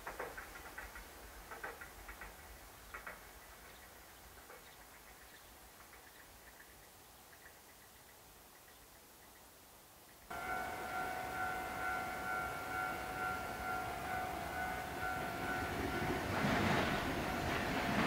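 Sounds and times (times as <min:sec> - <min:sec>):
electric train rumbling: 0:00.0 - 0:06.6, 0:10.3 - 0:18.0
electronic railway warning bell: 0:10.3 - 0:18.0.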